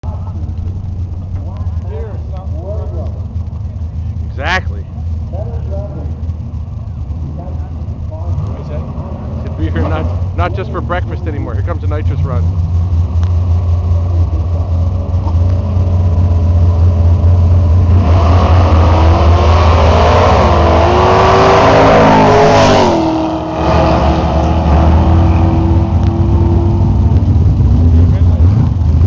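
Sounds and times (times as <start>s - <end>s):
drag racing cars accelerating: 0.0s - 29.0s
low engine rumble: 0.0s - 29.0s.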